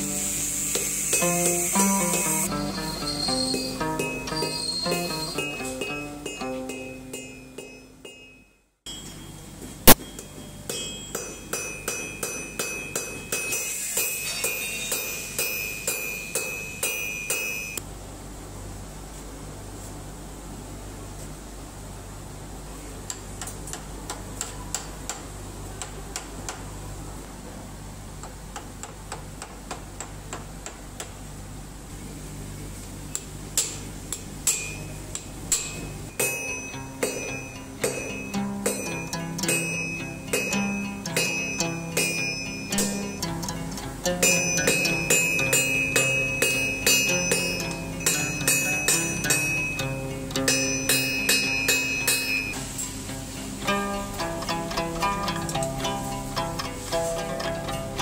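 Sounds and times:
hammer beating iron on anvil: 0.7 - 8.4, 9.9 - 17.8, 33.6 - 43.5, 44.1 - 52.6
plucked string music: 1.2 - 8.0, 36.2 - 58.0.

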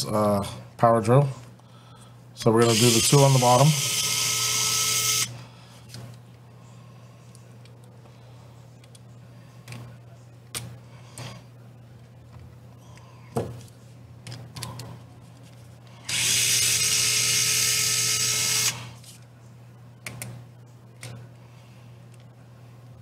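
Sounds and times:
electric screwdriver running: 2.7 - 5.3, 16.1 - 18.8.

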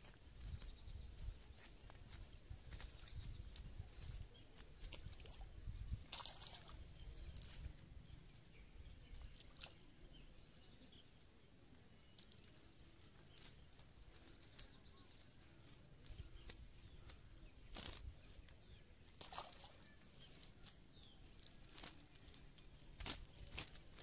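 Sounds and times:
net rustling in grass: 12.6 - 24.0.

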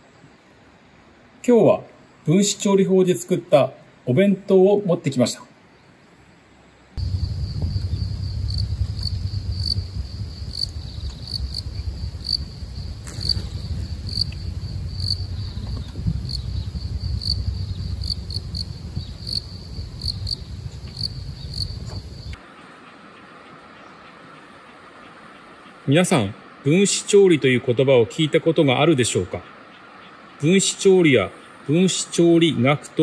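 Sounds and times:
insects trilling in grass: 7.0 - 22.4
low rumble: 7.0 - 22.4.

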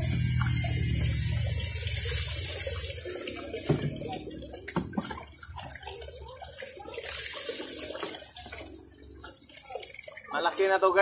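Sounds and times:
pitcher knocking in basin: 3.6 - 5.3.

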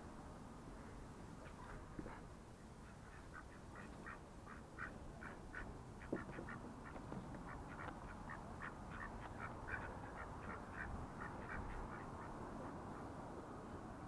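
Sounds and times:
ducks quacking: 2.8 - 13.1.

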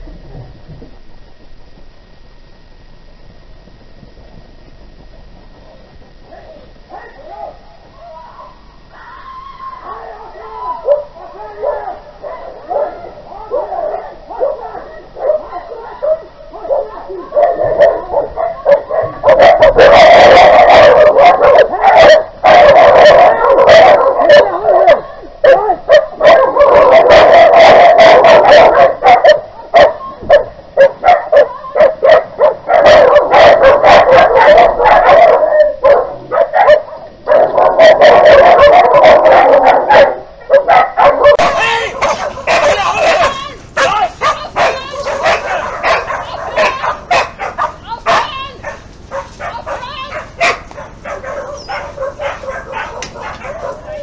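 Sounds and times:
dogs fighting: 10.8 - 54.0
dog yelping and whimpering: 40.5 - 54.0.

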